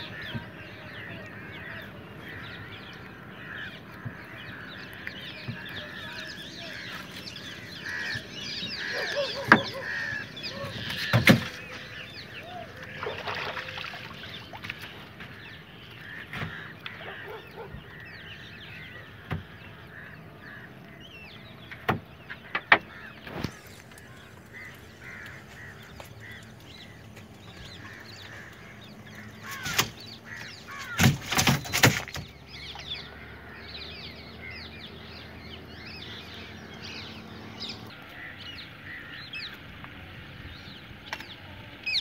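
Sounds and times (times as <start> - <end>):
birds chirping: 0.0 - 42.0.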